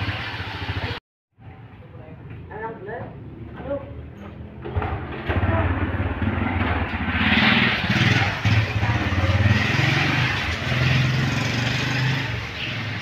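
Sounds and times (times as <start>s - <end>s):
engine running with changing pitch: 4.3s - 13.0s.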